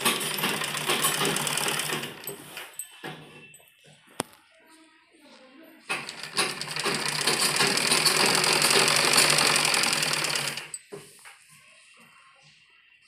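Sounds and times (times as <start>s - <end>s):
sewing machine stitching: 0.0s - 2.6s, 5.9s - 10.8s.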